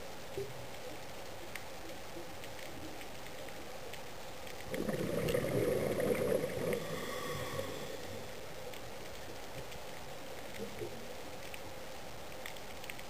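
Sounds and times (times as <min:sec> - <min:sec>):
faint underwater hiss: 0:00.0 - 0:12.0
bubbling water rush: 0:04.6 - 0:08.7.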